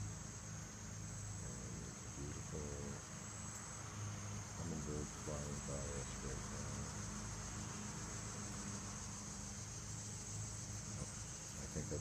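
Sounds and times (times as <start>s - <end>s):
insect chorus trilling: 0.0s - 12.0s
faint voice-like murmurs: 1.5s - 3.0s, 4.6s - 6.9s.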